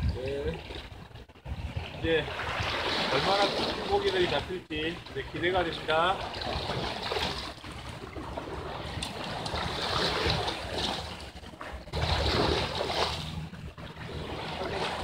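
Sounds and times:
low wind rumble: 0.0 - 15.0
waves washing on rocky shore: 2.0 - 4.4.

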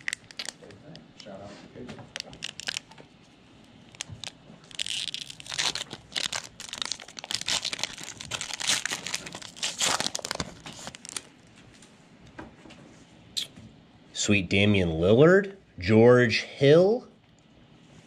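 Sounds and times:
foil wrapper tearing and crinkling: 0.0 - 0.7, 2.1 - 3.0, 3.9 - 11.3.

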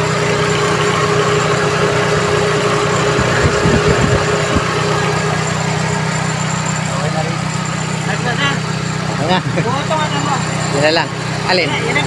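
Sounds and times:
air conditioning whine: 0.0 - 12.0
car engine idling: 0.0 - 12.0
low thuds: 3.2 - 4.8.

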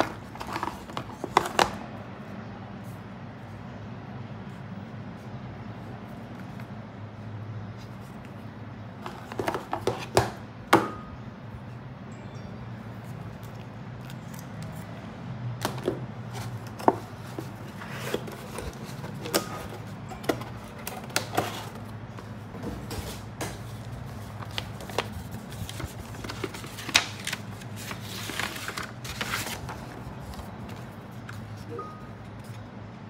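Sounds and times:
paper rustling: 0.0 - 3.7, 15.6 - 32.7.

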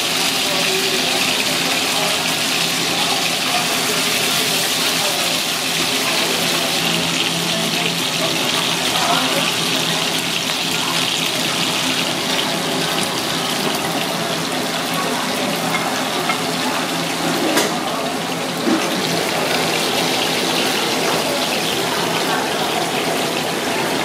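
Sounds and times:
fish sizzling in hot oil: 0.0 - 24.0.

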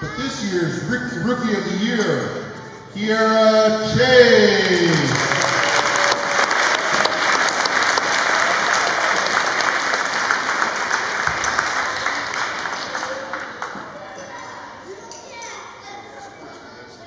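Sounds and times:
audience applauding: 4.7 - 14.0.

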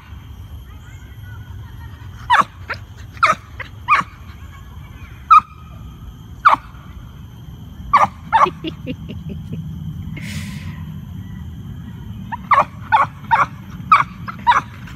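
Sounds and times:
dog yipping: 2.2 - 4.3, 5.3 - 5.6, 7.9 - 8.7, 12.3 - 14.9.

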